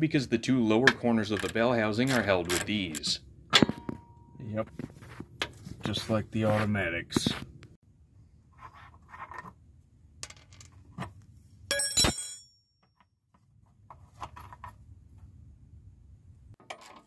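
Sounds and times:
loud metallic clink ringing: 11.7s - 12.8s.

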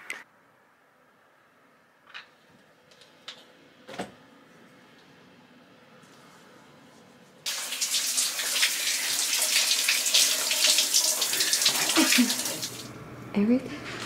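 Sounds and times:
shower spray hissing and splashing: 7.5s - 12.9s.

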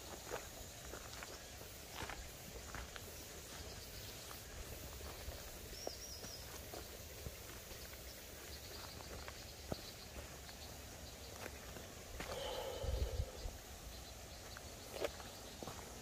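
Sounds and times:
footsteps on dirt path: 0.0s - 13.4s, 14.3s - 16.0s.

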